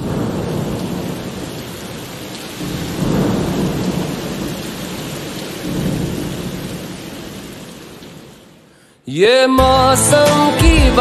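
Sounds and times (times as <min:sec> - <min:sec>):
thunder rumbling: 0:00.0 - 0:08.4
steady rain: 0:00.0 - 0:09.1.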